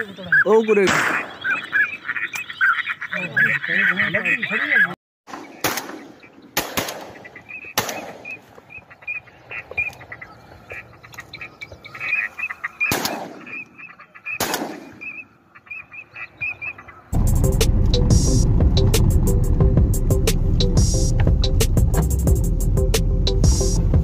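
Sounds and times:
ducks calling: 0.0s - 24.0s
shotgun shots with echo: 0.8s - 1.5s, 5.3s - 8.4s, 12.8s - 13.6s, 14.4s - 15.1s.

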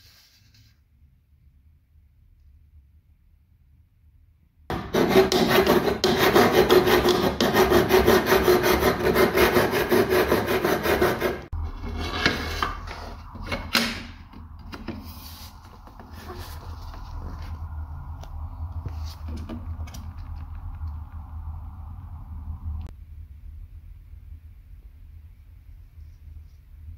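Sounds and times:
hacksaw cutting plastic trim: 4.7s - 11.4s.

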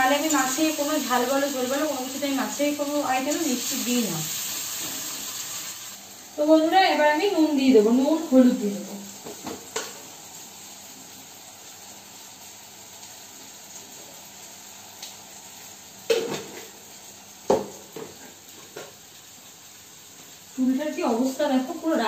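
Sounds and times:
masala sizzling in oil: 0.0s - 22.0s.

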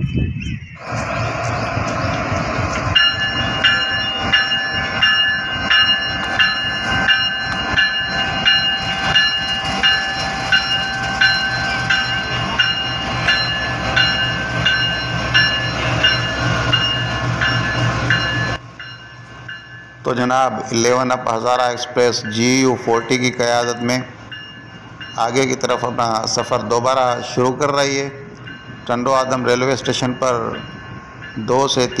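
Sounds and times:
locomotive engine humming: 0.1s - 32.0s
high metallic ringing: 3.0s - 20.8s.

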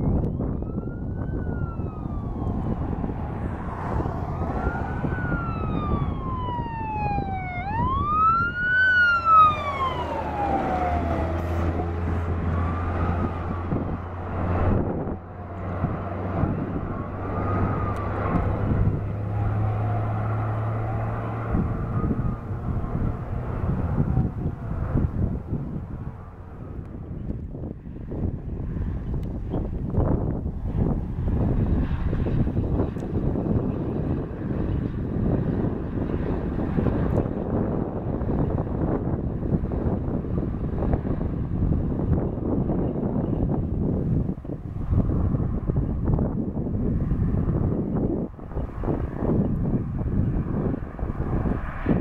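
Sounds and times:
siren wailing: 0.0s - 26.9s
diesel engine droning: 0.0s - 52.0s
wind rumble on microphone: 0.0s - 52.0s.

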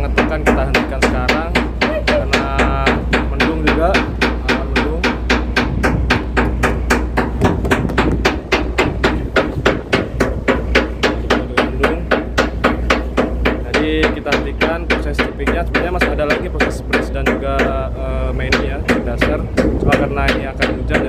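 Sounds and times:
hammers knocking on steel: 0.0s - 21.0s
low ship engine rumble: 0.0s - 21.0s.

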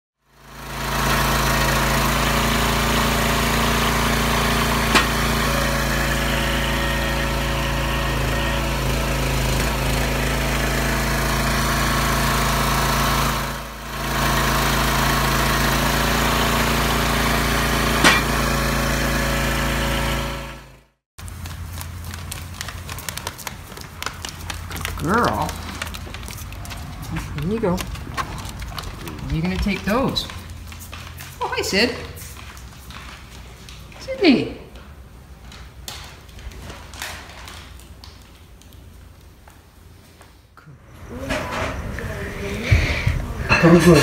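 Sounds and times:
small gasoline engine running: 0.2s - 33.0s
sharp knocks: 4.9s - 5.4s, 18.0s - 18.5s.

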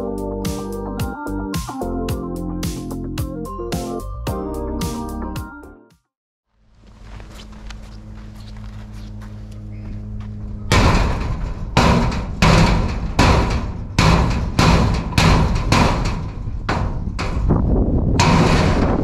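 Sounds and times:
hammer clanging on steel wall: 10.7s - 19.0s.

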